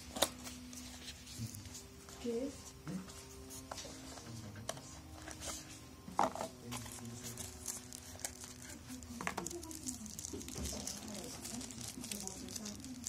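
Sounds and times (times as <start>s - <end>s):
plastic crinkling: 6.3s - 13.0s.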